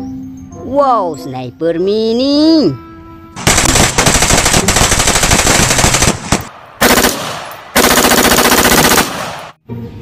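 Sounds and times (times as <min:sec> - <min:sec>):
automatic gunfire: 0:03.4 - 0:09.6
single gunshots: 0:03.4 - 0:09.6.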